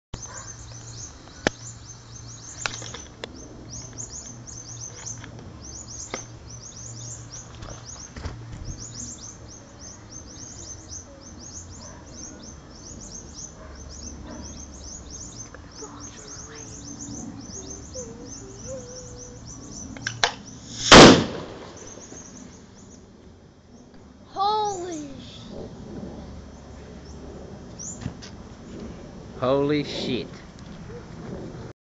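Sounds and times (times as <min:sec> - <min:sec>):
steady high chirping: 0:03.4 - 0:21.0
small pop: 0:20.0 - 0:21.8
loud bang: 0:20.7 - 0:21.9.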